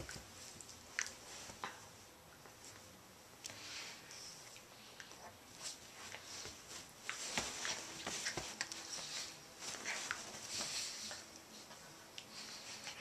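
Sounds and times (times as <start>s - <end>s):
dogs scuffling on blanket: 5.2s - 13.0s.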